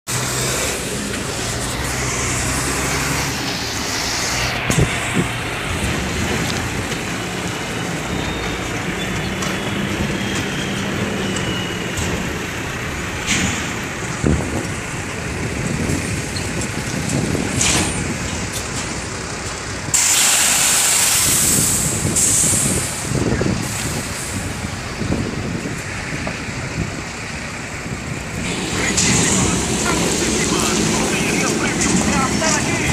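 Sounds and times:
diesel truck engine running: 0.1s - 32.9s
air brakes hissing: 19.9s - 24.6s.

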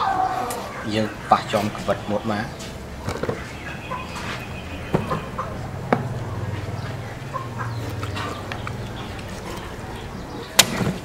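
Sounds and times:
steady low hum: 0.6s - 11.0s
cleaver chopping on wooden block: 10.6s - 11.0s.

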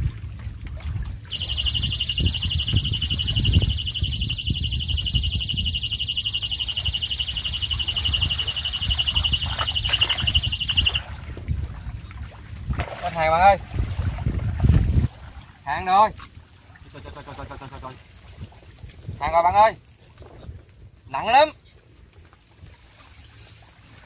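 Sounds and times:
waves: 0.0s - 24.0s
wind: 0.0s - 24.0s
fishing bite alarm beep: 1.3s - 11.0s
splashing in shallow water: 6.0s - 15.6s.

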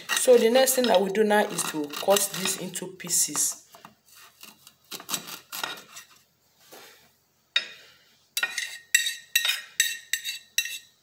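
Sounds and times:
knife cutting ginger: 0.0s - 2.7s, 4.4s - 6.1s
knife clinking on plate: 8.4s - 10.9s.

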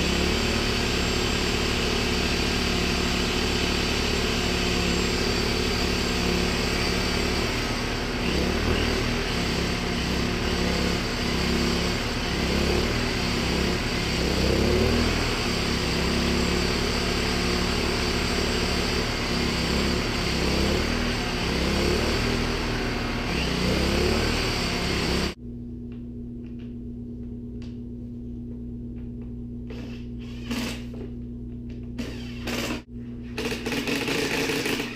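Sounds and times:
generator engine running unevenly: 0.0s - 25.4s.

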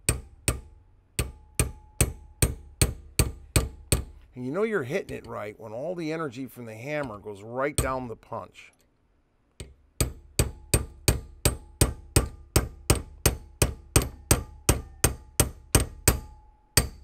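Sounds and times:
hammer striking steel punch: 0.0s - 4.2s, 9.6s - 17.0s.

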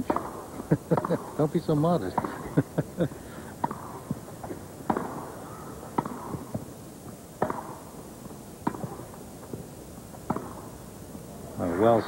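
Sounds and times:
tennis rackets hitting ball: 0.0s - 1.4s, 2.1s - 2.6s, 3.5s - 6.7s, 7.4s - 10.7s.

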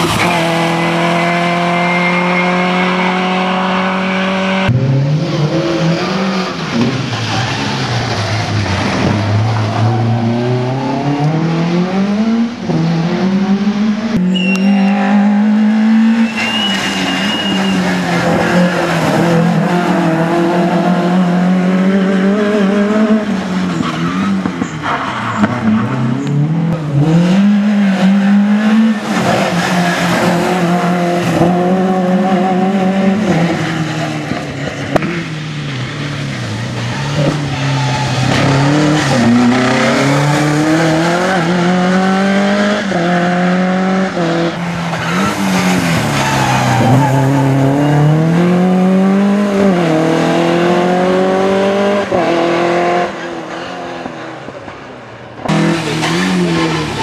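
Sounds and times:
rally car engine revving: 0.0s - 57.0s.

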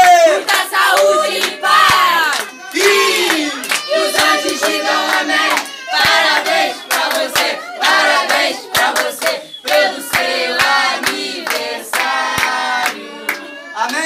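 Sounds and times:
group singing birthday song: 0.0s - 13.6s
hands clapping: 0.0s - 14.0s.

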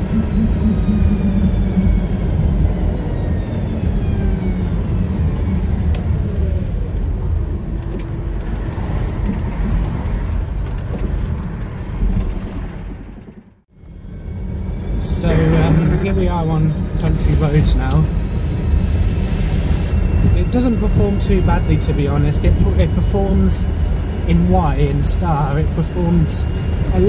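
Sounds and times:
electric motor whine: 0.0s - 8.2s, 13.9s - 27.0s
road and wind noise: 0.0s - 27.0s.

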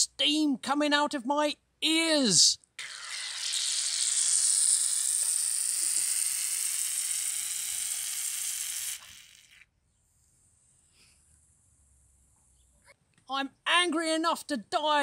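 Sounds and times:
aerosol can spraying: 2.8s - 9.5s.

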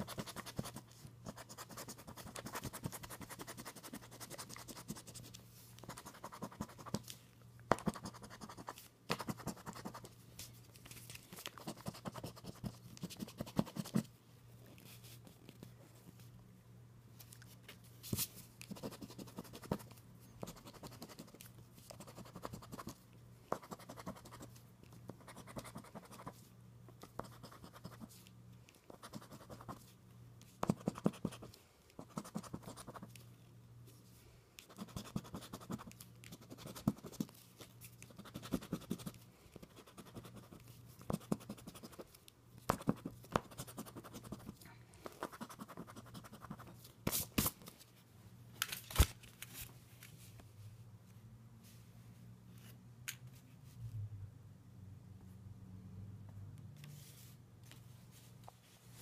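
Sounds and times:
scratching a scratch-off ticket: 0.0s - 7.0s.

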